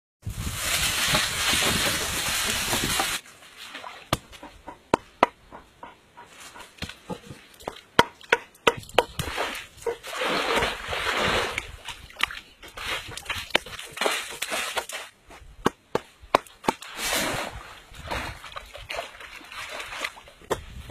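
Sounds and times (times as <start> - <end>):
log knocking on wooden stake: 4.1 - 6.0
water sloshing: 7.0 - 15.1, 16.8 - 20.8.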